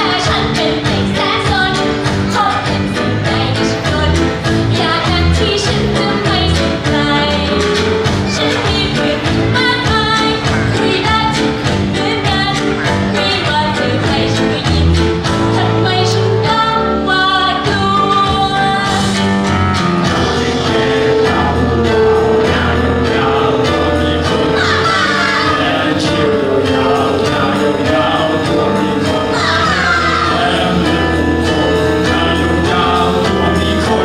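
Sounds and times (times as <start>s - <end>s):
woman singing: 0.0s - 19.2s
backing music with steady beat: 0.0s - 34.0s.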